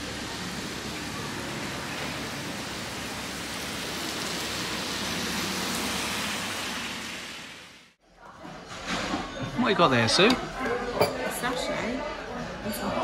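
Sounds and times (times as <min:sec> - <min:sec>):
tyres swishing on wet road: 0:00.0 - 0:08.0.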